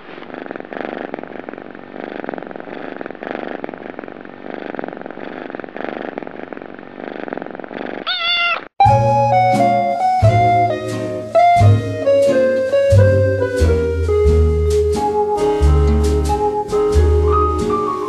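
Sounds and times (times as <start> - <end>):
kitten purring: 0.0 - 8.6, 15.5 - 18.0
kitten meowing: 8.0 - 8.7
guitar music: 8.8 - 18.0.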